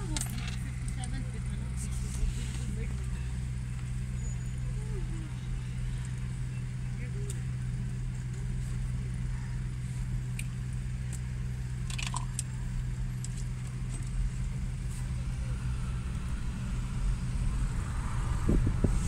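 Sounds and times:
light clicks and jingles: 0:00.0 - 0:01.4
vehicle engine idling: 0:00.0 - 0:19.0.

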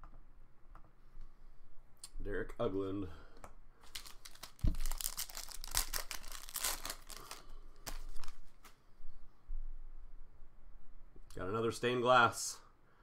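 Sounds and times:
wrapper crinkling and tearing: 0:03.8 - 0:08.7.

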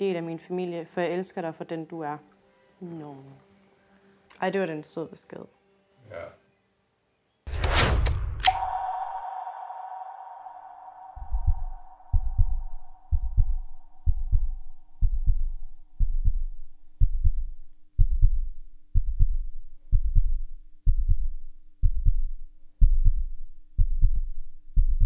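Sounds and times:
low hum tone: 0:07.5 - 0:24.4
heartbeat-like bass pulse: 0:11.0 - 0:25.0.

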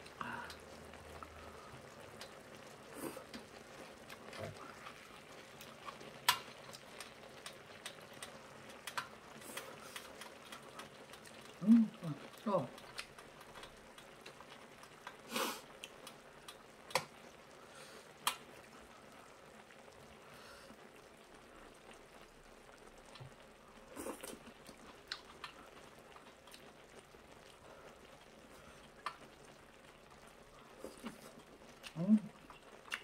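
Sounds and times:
person chewing food: 0:00.0 - 0:17.2, 0:22.8 - 0:33.0
wet mouth noises: 0:23.9 - 0:26.8, 0:30.7 - 0:33.0.

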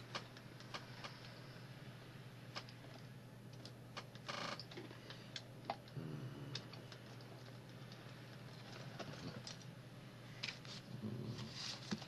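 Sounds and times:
faint steady hum: 0:00.0 - 0:12.0
paper rustle: 0:10.4 - 0:12.0.

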